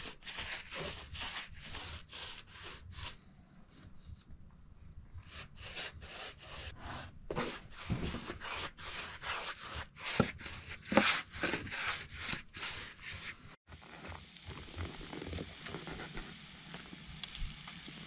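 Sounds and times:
paintbrush scrubbing on wood: 0.0s - 3.2s, 5.2s - 13.4s.

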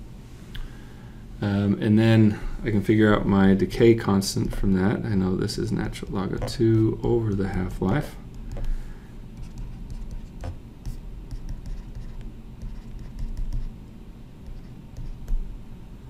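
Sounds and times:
steady low hum: 0.0s - 16.0s
stylus tapping and scratching on screen: 6.0s - 13.8s, 14.4s - 15.5s.

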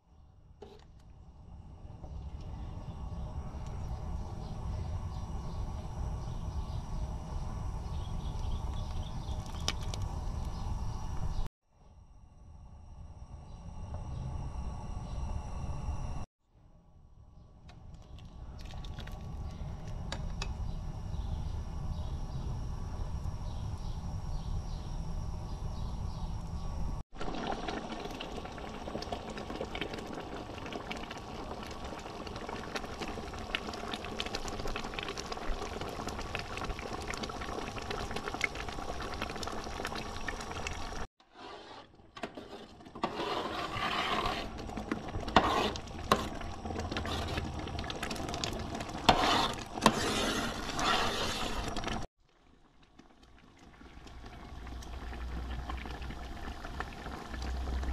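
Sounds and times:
juice boiling in a pot: 0.0s - 16.2s, 17.6s - 57.9s
bubbles popping: 27.2s - 41.1s, 44.6s - 49.1s, 51.7s - 57.9s.

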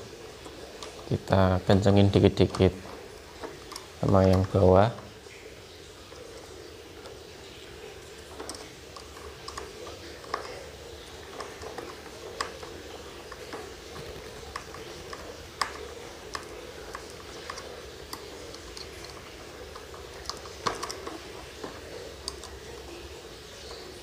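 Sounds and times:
faint steady hum: 0.0s - 24.0s
screwdriver clicking on screws: 8.1s - 22.9s.

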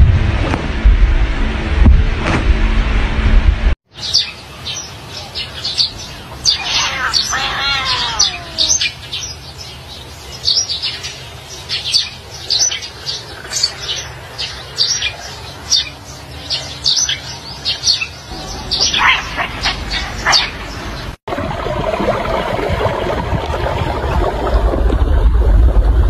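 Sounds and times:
small birds chirping: 4.0s - 21.2s.

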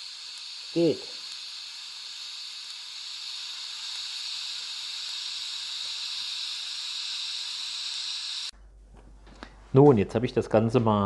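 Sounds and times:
gas flowing from torch: 0.0s - 8.6s
welding arc hissing: 0.0s - 8.6s.

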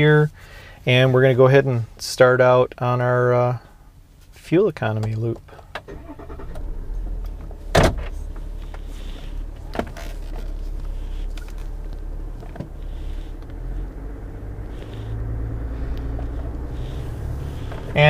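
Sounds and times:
diesel engine starting and idling: 5.7s - 18.0s.

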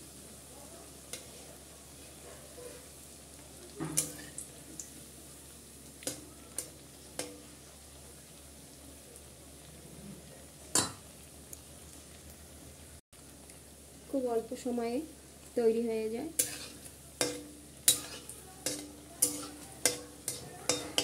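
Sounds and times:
fritters sizzling in hot oil: 0.0s - 21.0s
spatula knocking and scraping pan: 16.4s - 21.0s.

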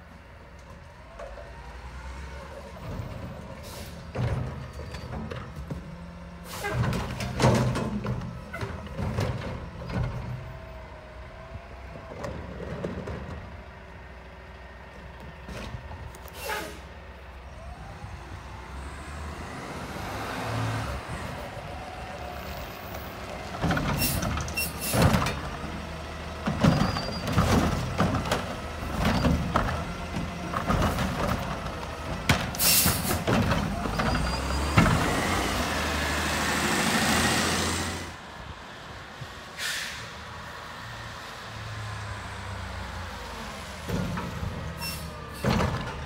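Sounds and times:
garbage truck diesel engine: 0.0s - 46.0s
air brake hisses: 16.3s - 16.9s, 39.6s - 40.2s.

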